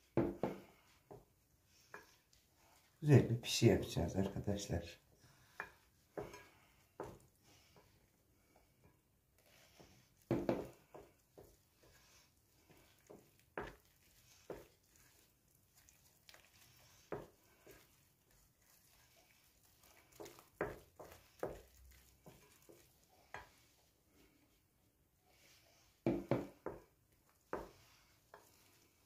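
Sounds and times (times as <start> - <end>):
spoon scraping dough in bowl: 9.4 - 24.5, 25.3 - 29.0.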